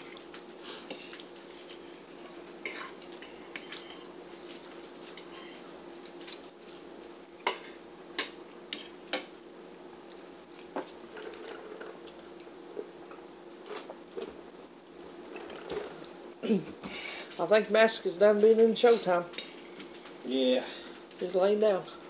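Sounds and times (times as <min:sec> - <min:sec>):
faint hum: 0:00.0 - 0:22.0
fork scraping a plate: 0:05.1 - 0:05.6.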